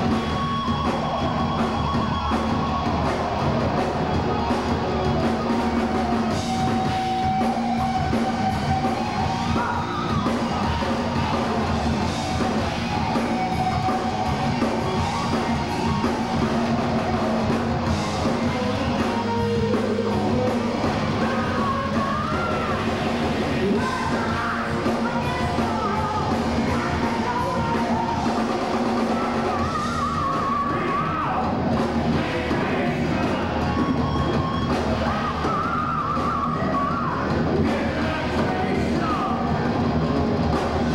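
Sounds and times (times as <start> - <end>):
heavy metal band playing: 0.0 - 40.9
person singing: 18.2 - 34.0, 34.9 - 39.7.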